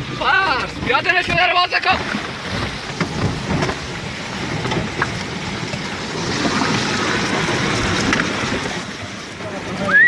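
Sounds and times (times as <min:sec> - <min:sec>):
floodwater rushing and splashing: 0:00.0 - 0:10.0.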